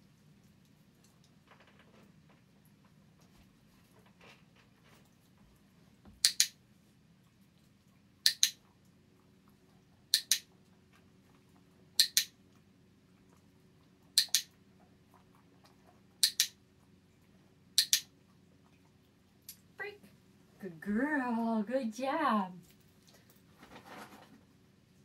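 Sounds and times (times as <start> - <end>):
training clicker clicking: 6.2 - 6.6, 8.2 - 8.6, 10.1 - 10.5, 12.0 - 12.3, 14.2 - 14.5, 16.2 - 16.6, 17.8 - 18.1.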